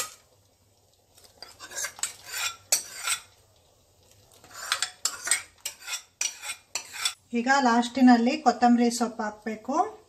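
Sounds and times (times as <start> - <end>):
spoons clinking on steel pot: 4.6 - 7.2.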